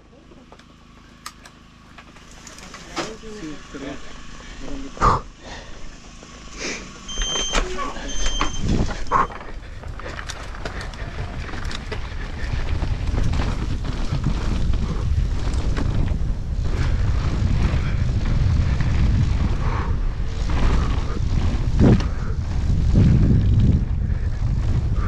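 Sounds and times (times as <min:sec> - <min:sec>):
mountain bike rattling downhill: 0:00.0 - 0:25.0
wind rumbling on microphone: 0:07.2 - 0:25.0.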